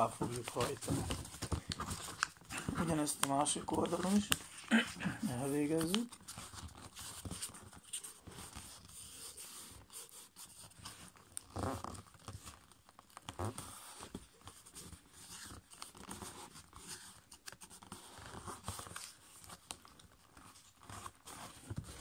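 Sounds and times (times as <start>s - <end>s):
paper rustling and scraping: 0.0s - 22.0s.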